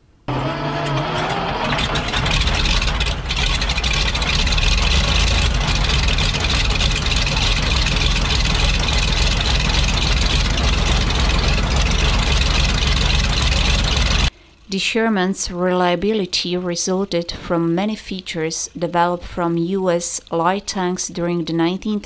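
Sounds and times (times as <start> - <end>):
tank engine running: 0.3 - 14.3.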